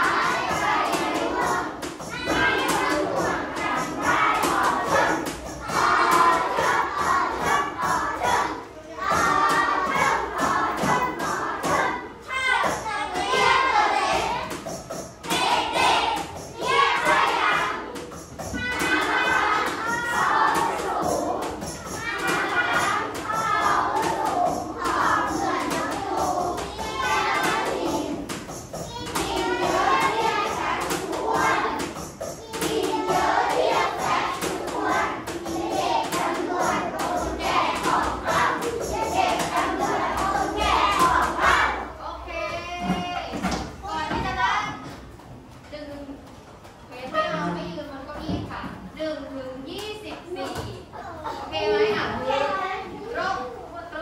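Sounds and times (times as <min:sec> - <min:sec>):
group of voices talking and shouting: 0:00.0 - 0:46.2, 0:46.8 - 0:54.0
people talking: 0:32.7 - 0:44.9, 0:46.9 - 0:54.0.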